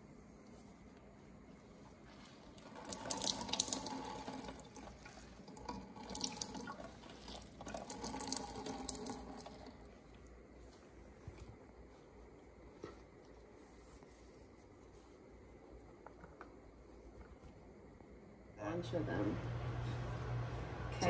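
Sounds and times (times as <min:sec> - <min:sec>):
wet cloth wrung out by hand: 0:01.8 - 0:12.0
liquid splashing into a metal sink: 0:02.6 - 0:09.8.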